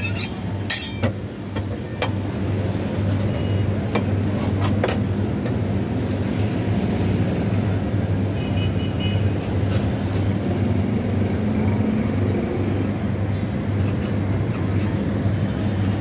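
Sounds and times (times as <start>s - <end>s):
metal spatula scraping steel plate: 0.0s - 1.2s
low mechanical hum: 0.0s - 16.0s.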